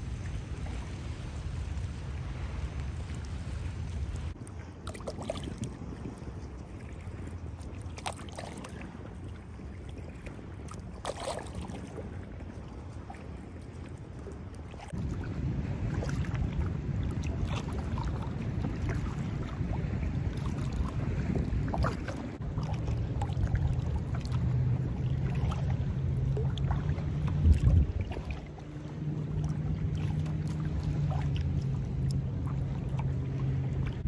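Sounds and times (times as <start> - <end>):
paddle splashing in water: 0.0 - 34.0
wind on microphone: 14.8 - 34.0.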